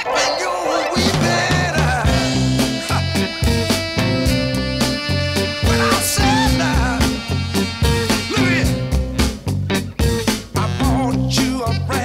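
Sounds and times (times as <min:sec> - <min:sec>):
upbeat band music: 0:00.0 - 0:12.0.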